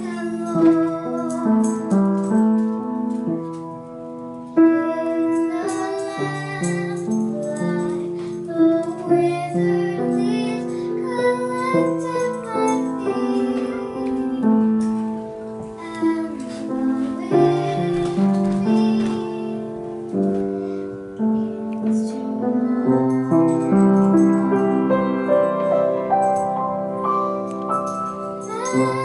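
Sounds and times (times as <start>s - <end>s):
girl singing a slow song: 0.0s - 29.0s
piano accompaniment: 0.0s - 29.0s.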